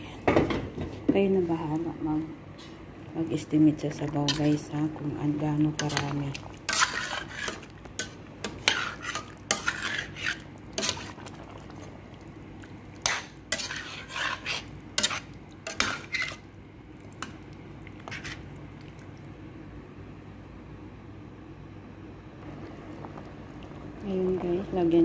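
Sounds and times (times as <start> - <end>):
steady low hum: 0.0 - 25.0
metal spoon stirring in a pot: 4.1 - 11.9, 12.9 - 16.5, 18.0 - 18.5.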